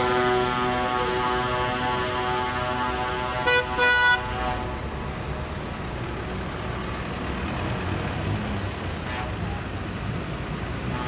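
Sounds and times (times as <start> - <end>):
vehicle horn blasts: 0.0 - 4.7
tractor engines rumbling: 0.0 - 11.0.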